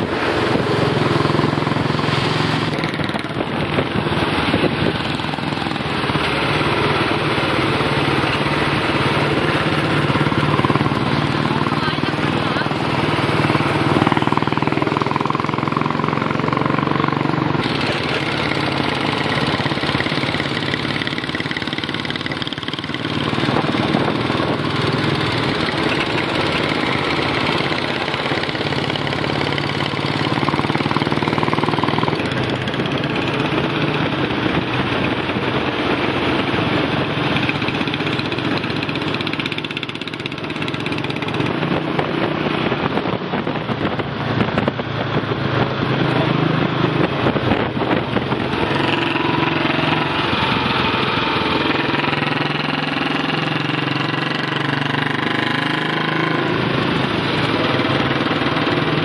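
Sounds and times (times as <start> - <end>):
motorcycle engines running: 0.0 - 59.0.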